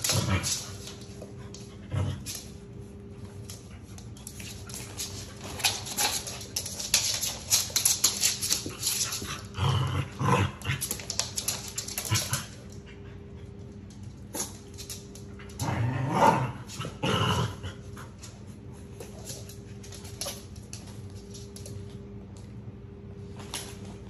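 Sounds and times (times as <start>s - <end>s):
paws scuffling on floor: 0.0s - 24.0s
dogs snarling and growling: 9.0s - 11.0s, 15.5s - 18.0s.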